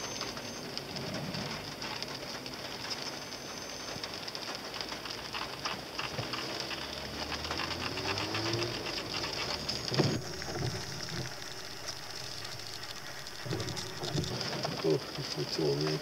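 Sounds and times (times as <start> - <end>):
rain pattering on car roof: 0.0 - 16.0
car engine running: 7.9 - 14.8
rising tone: 9.4 - 14.9.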